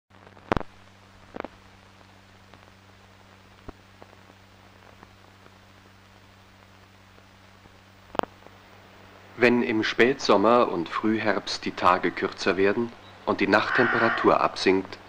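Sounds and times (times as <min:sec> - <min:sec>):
film soundtrack hum and hiss: 0:00.1 - 0:15.0
film crackle and ticks: 0:00.2 - 0:09.3.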